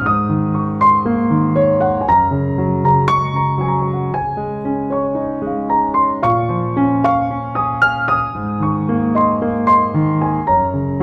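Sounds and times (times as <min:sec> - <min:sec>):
slow gentle piano music: 0:00.0 - 0:11.0.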